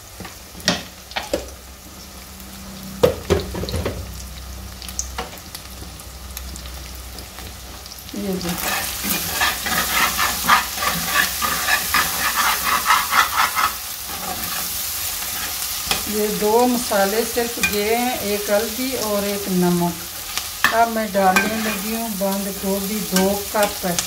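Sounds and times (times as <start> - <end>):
food sizzling: 0.0 - 24.0
metal spoon scraping a pan: 8.4 - 16.4, 17.6 - 17.9, 20.6 - 24.0.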